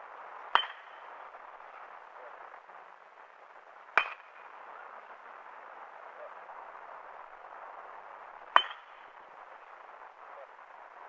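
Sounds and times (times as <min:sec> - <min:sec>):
metal bat pinging a ball: 0:00.5 - 0:01.0, 0:04.0 - 0:04.4, 0:08.5 - 0:09.0.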